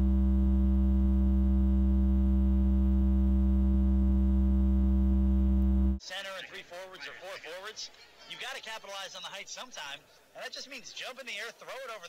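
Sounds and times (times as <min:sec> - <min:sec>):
low electrical hum: 0:00.0 - 0:06.0.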